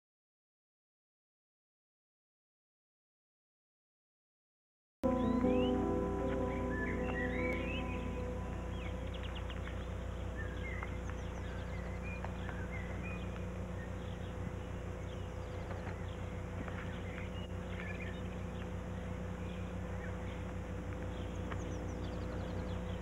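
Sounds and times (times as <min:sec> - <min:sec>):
faint bird chirps: 0:05.0 - 0:23.0
low hum and hiss: 0:05.0 - 0:23.0.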